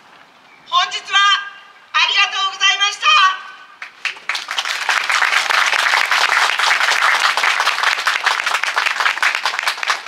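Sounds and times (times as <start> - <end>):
audience applauding: 3.8 - 10.0.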